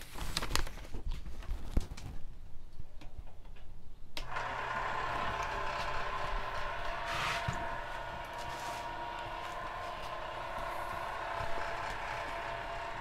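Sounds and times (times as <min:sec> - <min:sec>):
steady electrical hum: 0:03.8 - 0:13.0.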